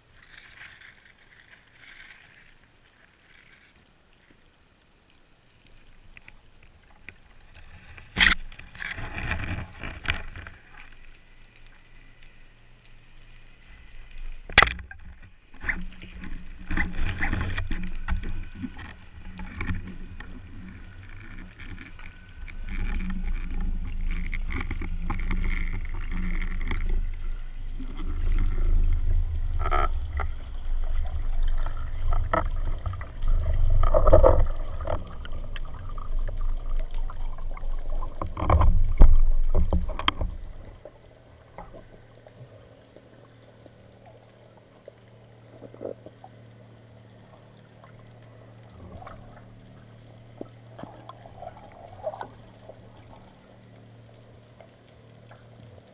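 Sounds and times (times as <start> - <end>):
underwater rumble of rushing water: 0.0 - 55.9
gurgling bubbles: 15.6 - 42.6, 47.3 - 53.6.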